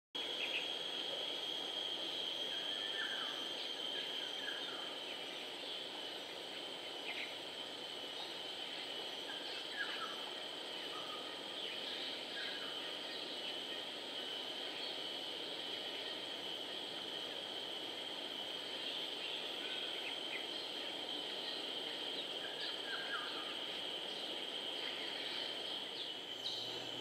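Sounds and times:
high-pitched insect drone: 0.2s - 27.0s
faint bird chirps: 18.8s - 27.0s.

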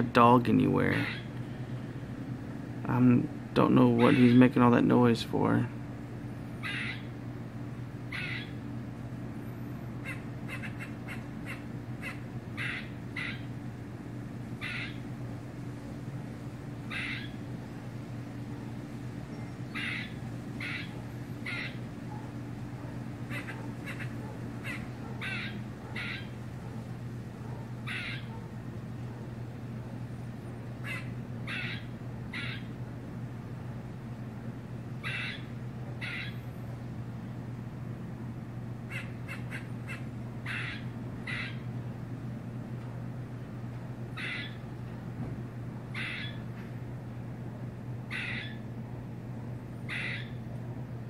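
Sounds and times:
steady low hum: 0.0s - 51.0s
squirrel alarm barking: 0.6s - 1.4s, 3.6s - 4.8s, 6.5s - 7.3s, 8.0s - 8.8s, 10.0s - 15.2s, 15.8s - 30.0s, 30.8s - 33.1s, 34.8s - 36.5s, 38.8s - 41.8s, 44.1s - 44.7s, 45.9s - 46.6s, 48.0s - 48.7s, 49.8s - 50.5s
squirrel chucks: 0.9s - 1.4s, 6.6s - 7.1s, 8.1s - 8.6s, 10.0s - 13.5s, 14.6s - 15.0s, 16.9s - 17.4s, 19.3s - 26.8s, 27.6s - 28.5s, 30.8s - 32.7s, 35.0s - 36.4s, 38.9s - 41.6s, 44.2s - 44.6s, 45.9s - 46.4s, 48.1s - 48.6s, 49.8s - 50.4s.

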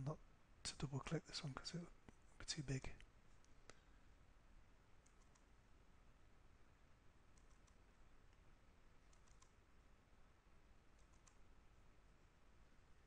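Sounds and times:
computer mouse clicks: 5.0s - 5.5s, 7.3s - 8.4s, 9.1s - 9.6s, 11.0s - 11.4s.

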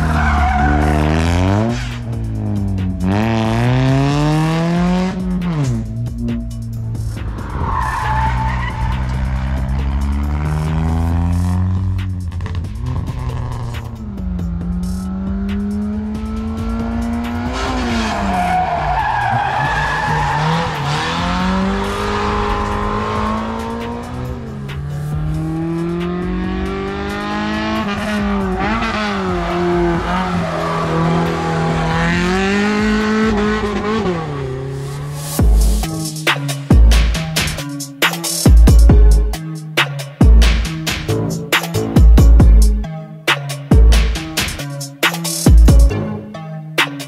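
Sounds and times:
car engine revving hard: 0.0s - 5.9s, 7.2s - 36.0s
tires squealing: 0.0s - 39.3s.

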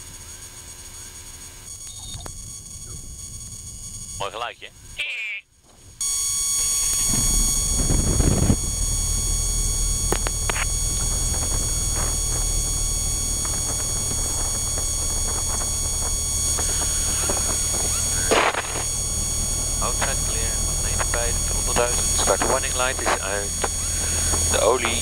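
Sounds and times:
light aircraft engine drone: 6.1s - 25.0s.

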